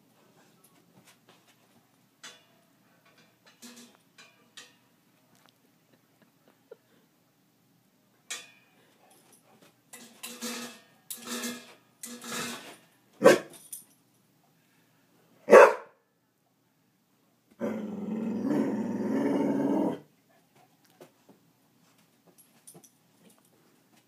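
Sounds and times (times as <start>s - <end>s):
dog barking sharply: 13.2s - 13.5s, 15.5s - 16.0s
dog growling: 17.6s - 20.1s.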